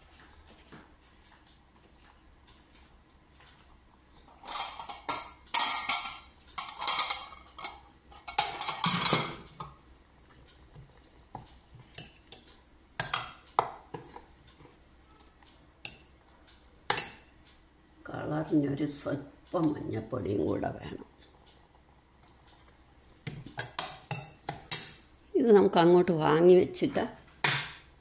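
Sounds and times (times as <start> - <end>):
steel pans clanking: 4.4 - 9.7.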